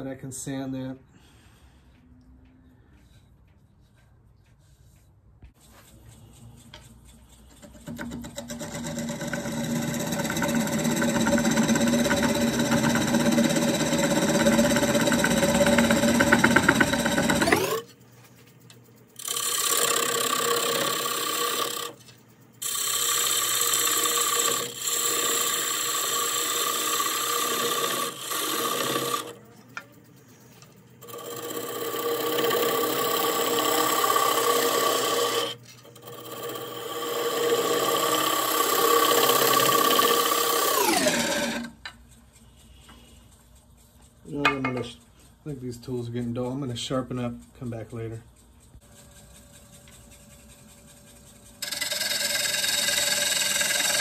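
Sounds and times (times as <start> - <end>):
gouge cutting wood on lathe: 6.6 - 17.9, 19.2 - 29.8, 31.0 - 42.0, 48.8 - 54.0
lathe whine falling in pitch: 51.6 - 54.0.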